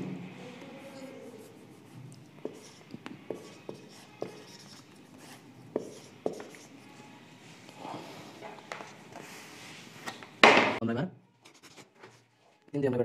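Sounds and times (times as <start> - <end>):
marker writing on whiteboard: 1.0 - 7.1.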